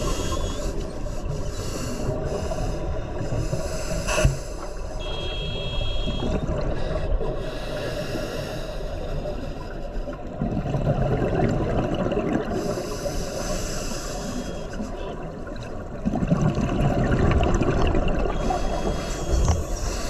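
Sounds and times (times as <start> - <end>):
bubbling exhalations underwater: 10.4 - 12.7, 15.9 - 18.5.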